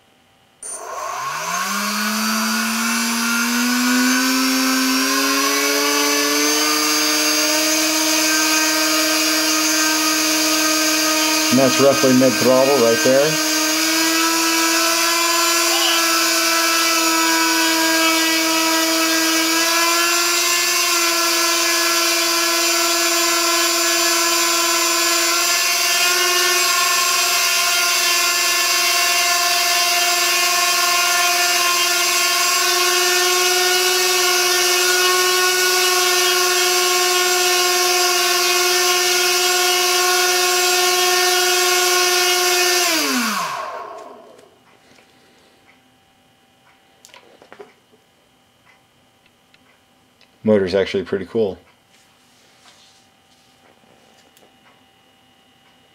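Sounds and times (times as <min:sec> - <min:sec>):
electric motor and propeller whine: 0:00.6 - 0:44.6.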